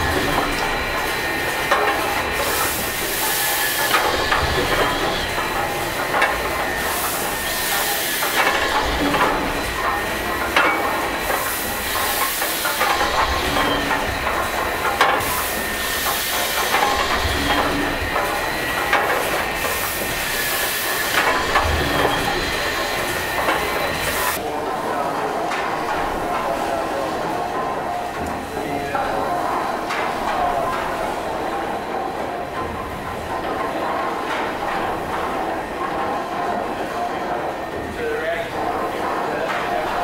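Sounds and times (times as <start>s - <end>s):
clicks and knocks of moving parts: 0.0s - 24.4s
steam engine hissing: 0.0s - 40.0s.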